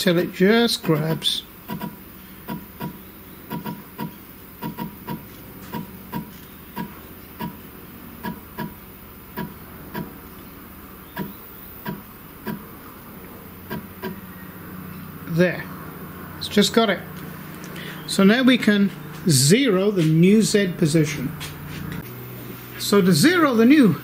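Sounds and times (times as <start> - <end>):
machine axis ticking: 0.7 - 7.6, 8.2 - 10.2, 11.1 - 12.6, 13.7 - 14.2.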